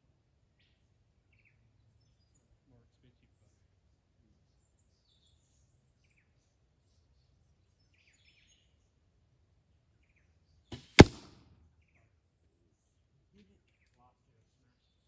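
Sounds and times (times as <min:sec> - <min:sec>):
arrow striking cardboard target: 0:10.8 - 0:11.3.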